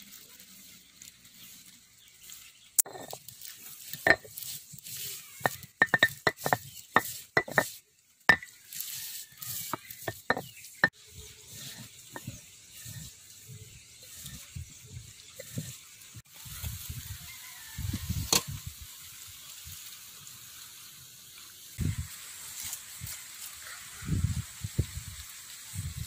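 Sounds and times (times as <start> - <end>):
stone roller crushing chickpeas: 2.8 - 15.8.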